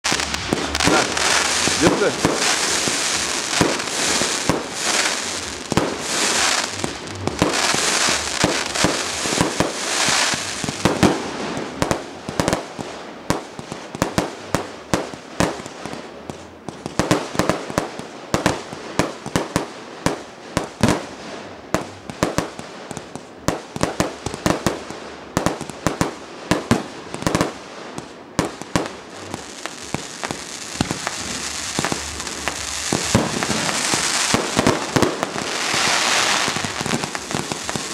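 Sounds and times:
fireworks hissing: 0:00.0 - 0:12.6, 0:26.6 - 0:37.9
fireworks bangs: 0:00.0 - 0:37.9.

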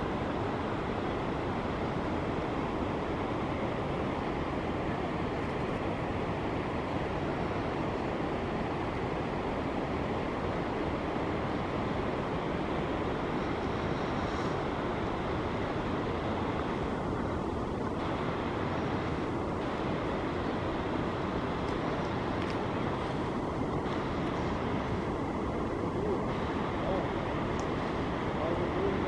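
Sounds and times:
wind blowing across microphone: 0:00.0 - 0:29.0.

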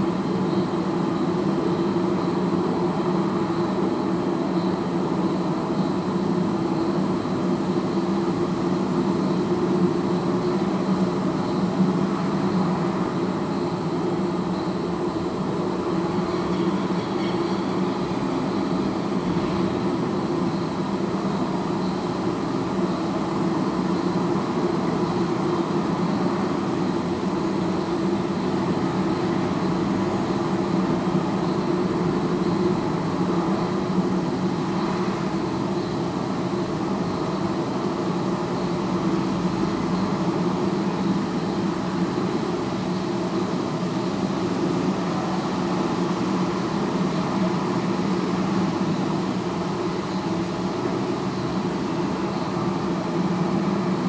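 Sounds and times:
faint high whine: 0:00.0 - 0:54.0.

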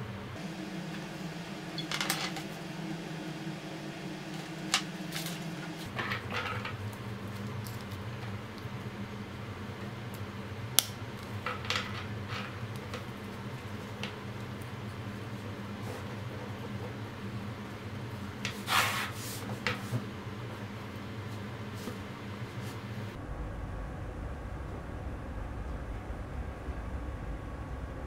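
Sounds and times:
steady low hum: 0:00.0 - 0:28.0
sharp snaps: 0:10.8 - 0:11.0.

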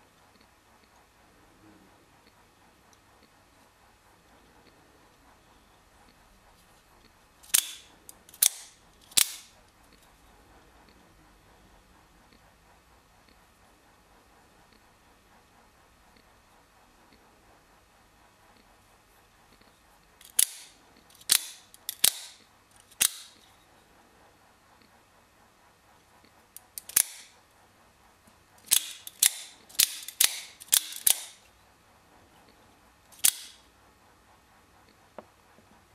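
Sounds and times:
knife blade metallic snaps: 0:20.2 - 0:22.4.

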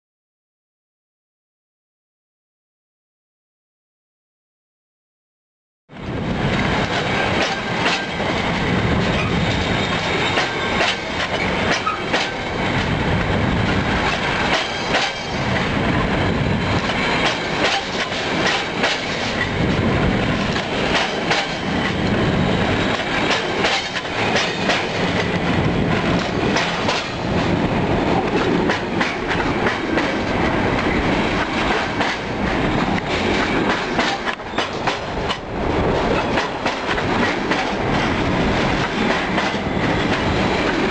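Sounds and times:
freight train wagons rumbling: 0:05.9 - 0:40.9
wheels clattering over rail joint: 0:06.5 - 0:12.9, 0:13.7 - 0:16.0, 0:16.7 - 0:22.1, 0:22.9 - 0:40.9.

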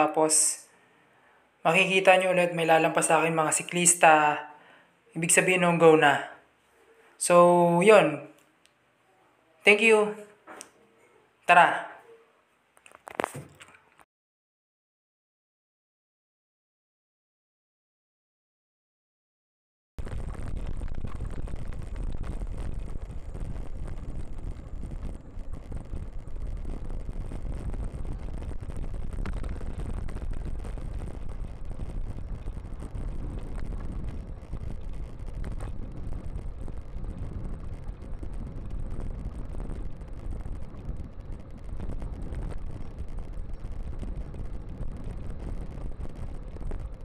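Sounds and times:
wind buffeting microphone: 0:20.0 - 0:47.0
bicycle tyre road noise: 0:20.2 - 0:47.0.

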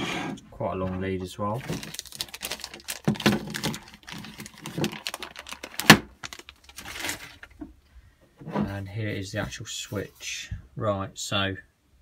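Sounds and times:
plastic bag crinkling: 0:01.5 - 0:07.7.

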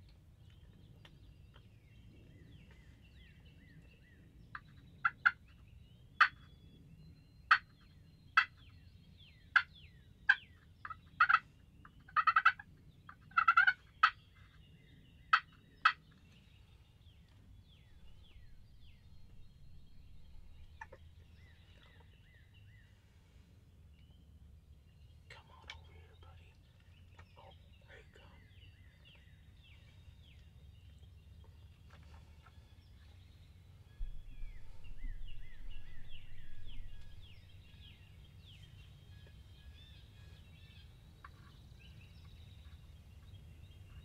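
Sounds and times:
faint songbirds chirping: 0:00.0 - 0:44.0
wild turkeys calling: 0:09.5 - 0:14.2, 0:18.0 - 0:22.1, 0:34.0 - 0:38.0.

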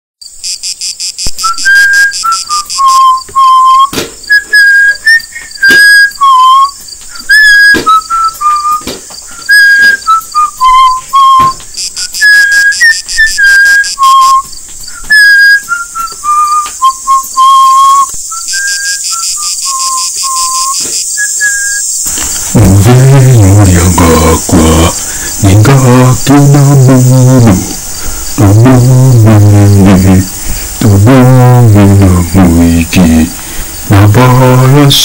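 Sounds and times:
steady hiss: 0:00.3 - 0:35.0
whistled tune: 0:01.3 - 0:23.0.

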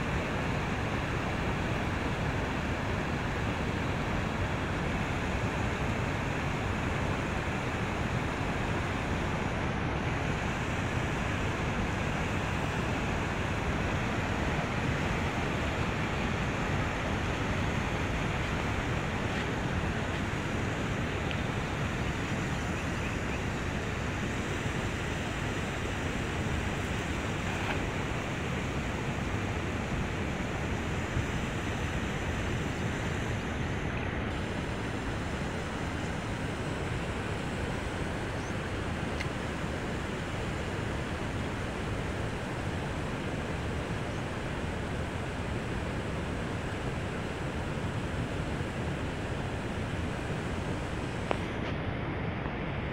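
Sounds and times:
river water rushing: 0:00.0 - 0:52.8.

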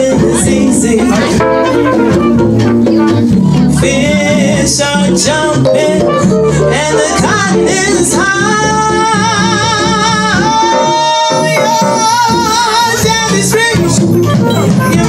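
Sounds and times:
drums: 0:00.0 - 0:15.0
upright bass: 0:00.0 - 0:15.0
trumpet: 0:00.2 - 0:15.0
woman singing: 0:03.5 - 0:13.9.

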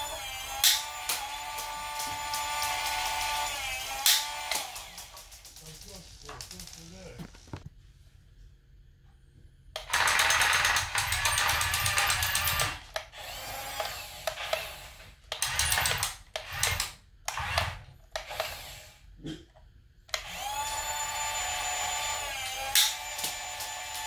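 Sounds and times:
toy tank motors whining: 0:00.0 - 0:07.6, 0:09.8 - 0:19.0, 0:20.1 - 0:24.0.

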